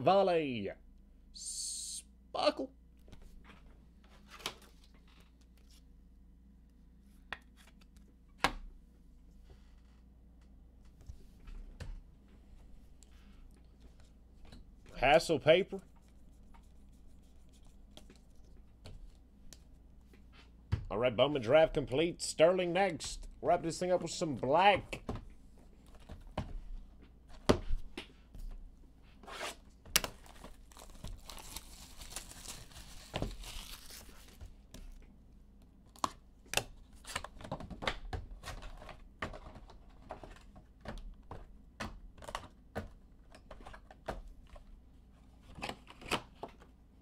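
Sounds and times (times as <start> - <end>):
plastic wrapping tearing and crinkling: 30.0 - 34.4.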